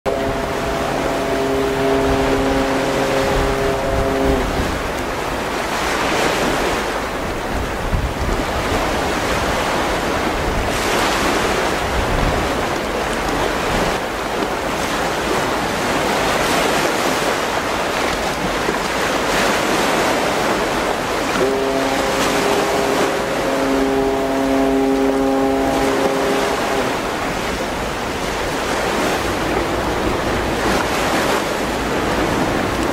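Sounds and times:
waves washing: 0:00.0 - 0:32.9
ship whistle blowing: 0:00.1 - 0:06.8, 0:21.2 - 0:32.8
wind buffeting microphone: 0:00.1 - 0:32.9.

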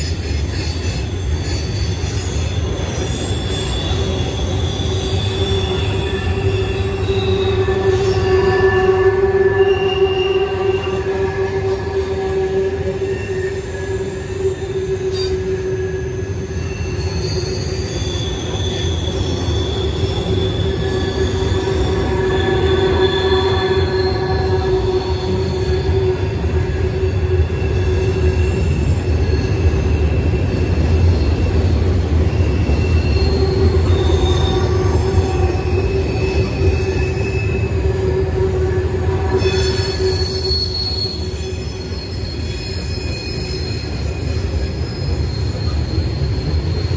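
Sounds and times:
train cars rumbling past: 0:00.0 - 0:46.9
train wheels squealing: 0:00.0 - 0:46.9.

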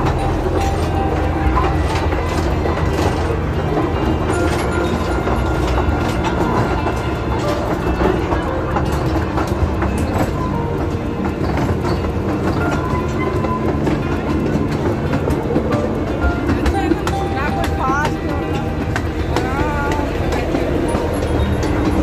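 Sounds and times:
ride cars rumbling on rails: 0:00.0 - 0:22.0
wheel clicks clattering: 0:00.0 - 0:22.0.

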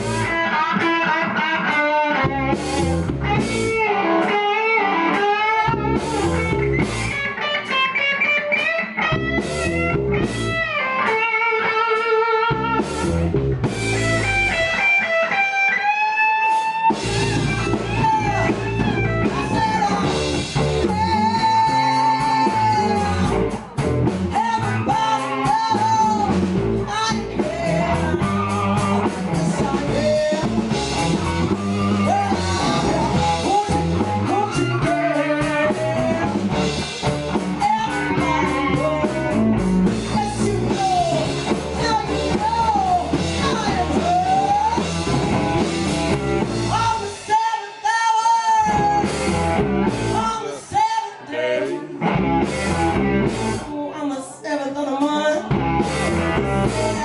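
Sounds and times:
bending sliding guitar lead: 0:00.0 - 0:47.3, 0:48.5 - 0:53.7, 0:55.4 - 0:57.0
electric guitar: 0:00.0 - 0:54.0, 0:54.7 - 0:57.0
drums: 0:00.0 - 0:57.0.

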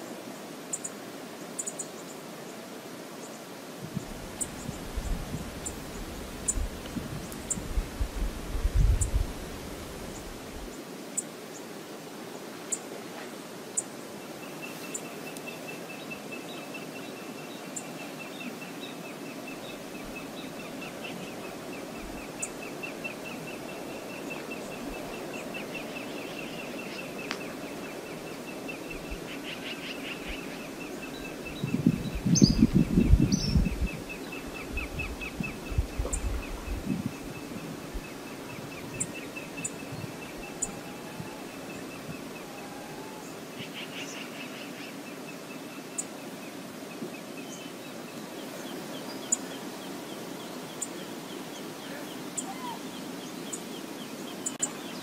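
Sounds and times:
wind: 0:00.0 - 0:55.0
wind buffeting microphone: 0:03.8 - 0:10.7, 0:31.1 - 0:42.5.

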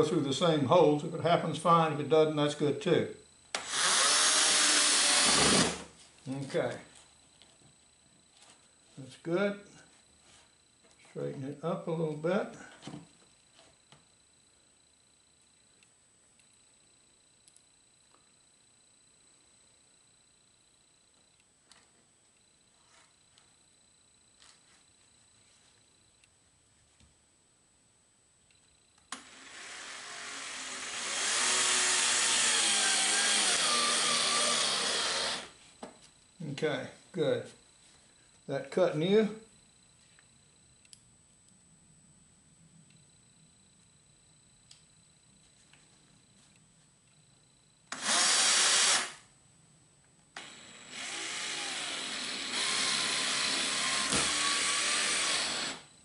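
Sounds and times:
cordless drill driving a screw: 0:03.5 - 0:05.9, 0:29.1 - 0:35.6, 0:47.9 - 0:49.2, 0:50.4 - 0:55.9.

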